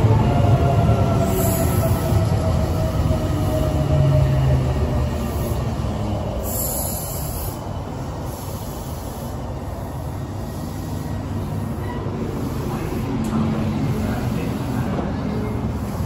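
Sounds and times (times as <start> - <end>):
train wheels rumbling on rails: 0.0 - 16.0
high brake squeal: 11.8 - 12.2.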